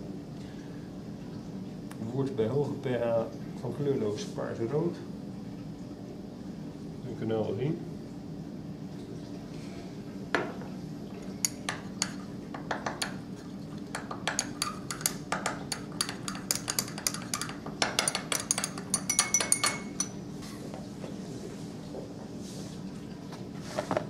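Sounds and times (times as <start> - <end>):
glass rod clinking in beaker: 11.3 - 12.2, 13.9 - 20.2.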